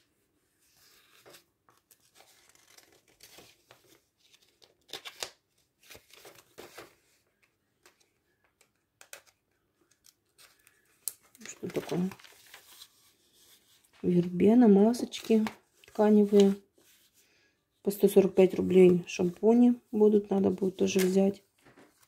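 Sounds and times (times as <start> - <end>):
catalogue pages rustling: 0.6 - 17.2, 18.0 - 22.0
paper crinkling: 0.9 - 14.3.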